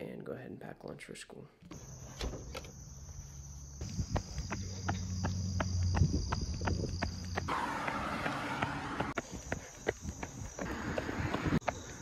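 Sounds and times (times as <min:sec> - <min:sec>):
insects chirring: 0:01.7 - 0:07.5, 0:09.1 - 0:12.0
running footsteps on pavement: 0:03.8 - 0:12.0.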